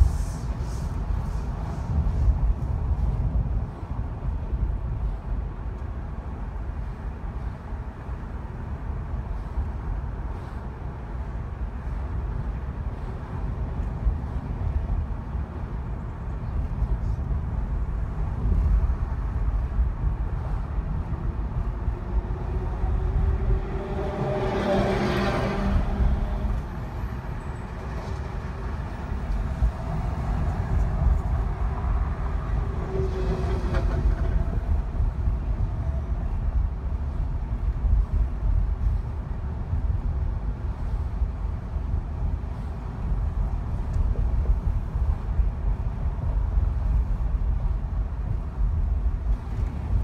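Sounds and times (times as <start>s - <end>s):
car road and engine rumble: 0.0s - 50.0s
passing vehicle swell: 20.5s - 37.2s.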